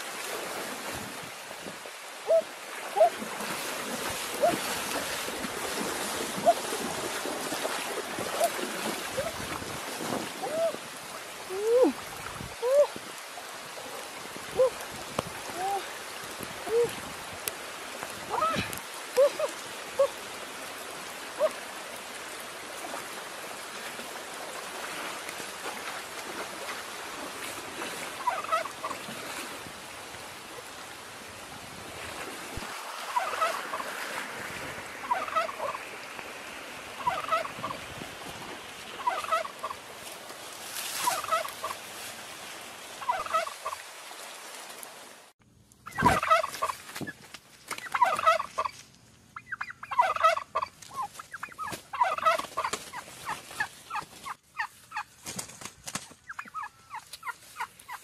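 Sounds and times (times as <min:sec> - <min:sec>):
animal calling: 0:02.2 - 0:03.2.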